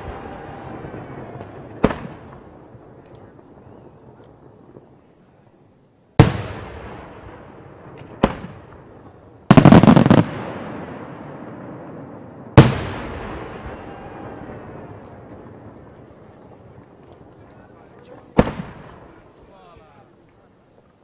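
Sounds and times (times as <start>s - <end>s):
rapid firework cracks: 0.0s - 4.9s, 6.2s - 16.0s, 18.0s - 19.2s
firework shells bursting with bangs: 6.2s - 11.7s.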